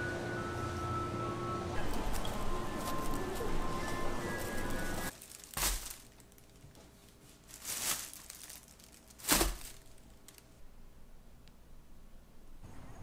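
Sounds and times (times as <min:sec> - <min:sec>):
plastic bag rustling: 0:01.8 - 0:10.5.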